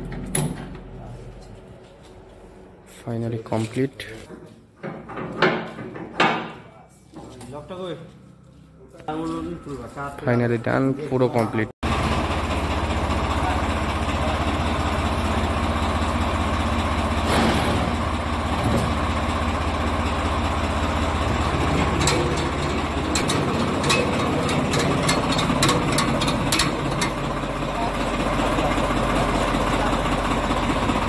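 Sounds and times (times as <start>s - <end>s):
tractor engine idling: 11.8s - 31.0s
sharp clicks and knocks: 21.4s - 27.3s.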